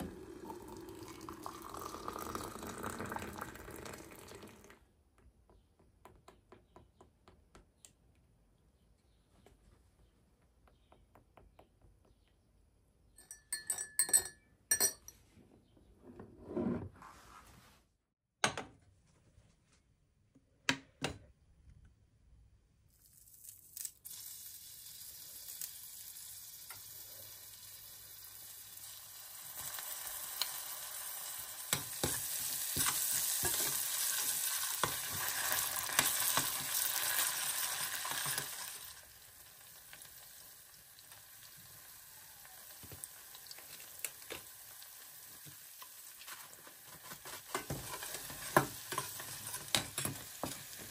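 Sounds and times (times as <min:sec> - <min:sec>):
glass mugs clinking: 0:13.2 - 0:15.2
garlic sizzling in oil: 0:23.4 - 0:50.9
spoon stirring in pan: 0:45.8 - 0:50.9.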